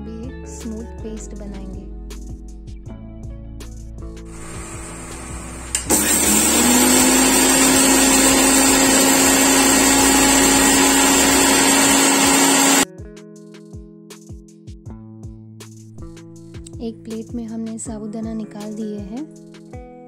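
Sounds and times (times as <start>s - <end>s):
electric mixer grinder motor: 4.3s - 12.8s.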